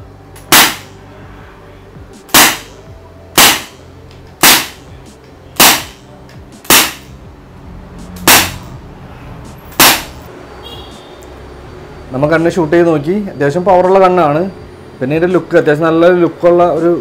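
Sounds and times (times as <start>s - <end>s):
air revolver shots ringing: 0.4s - 1.0s, 2.3s - 2.8s, 3.4s - 4.9s, 5.6s - 6.0s, 6.6s - 7.1s, 8.2s - 8.7s, 9.7s - 10.2s.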